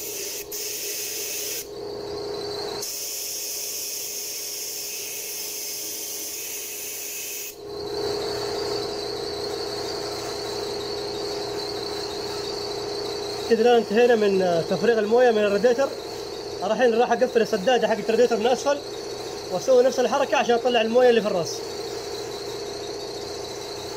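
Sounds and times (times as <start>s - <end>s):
compressed air blow gun hissing: 0.0s - 1.7s, 2.8s - 7.6s.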